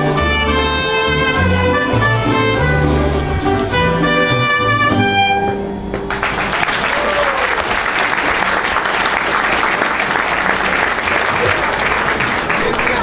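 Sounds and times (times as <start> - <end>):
mariachi violins and trumpet: 0.0 - 5.6
audience applauding: 6.1 - 13.0.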